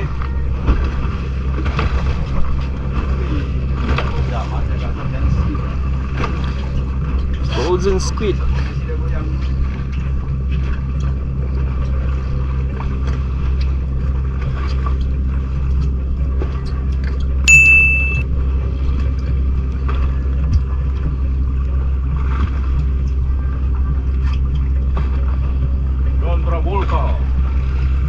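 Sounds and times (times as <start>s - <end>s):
boat engine humming: 0.0s - 28.0s
high electronic ding: 17.5s - 18.2s.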